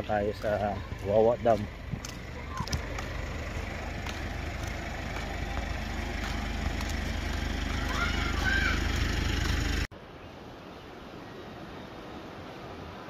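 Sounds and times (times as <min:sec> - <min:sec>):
small engine running: 0:01.3 - 0:09.9.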